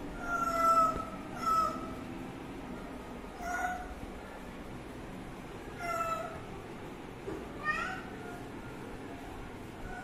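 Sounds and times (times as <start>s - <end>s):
cat meowing: 0.2s - 1.9s, 3.4s - 3.9s, 7.6s - 8.4s.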